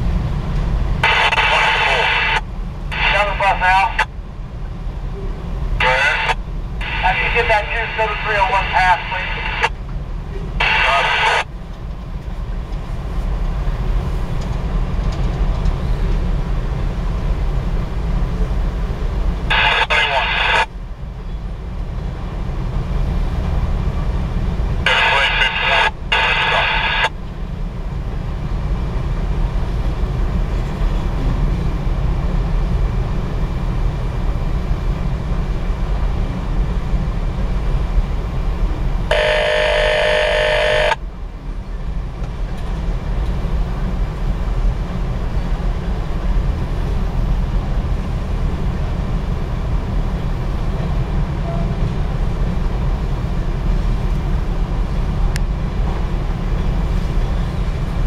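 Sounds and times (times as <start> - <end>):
loud electronic tone: 1.0 - 2.4, 5.8 - 9.7, 39.1 - 41.0.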